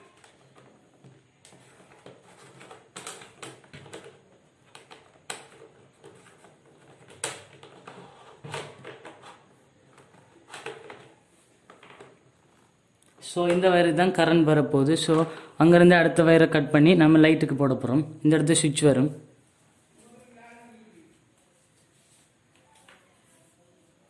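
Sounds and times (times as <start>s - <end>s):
wire clicks and rustles: 0.0s - 13.7s.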